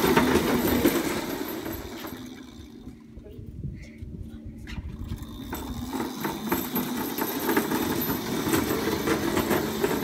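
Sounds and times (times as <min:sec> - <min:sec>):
hard wheels rumbling on pavers: 0:00.0 - 0:03.1, 0:05.1 - 0:10.0
electric motor hum: 0:04.8 - 0:10.0.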